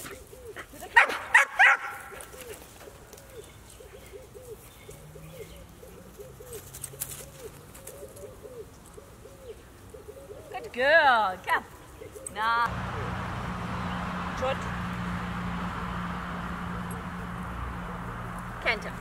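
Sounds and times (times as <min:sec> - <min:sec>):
dog barking: 0:01.0 - 0:02.0.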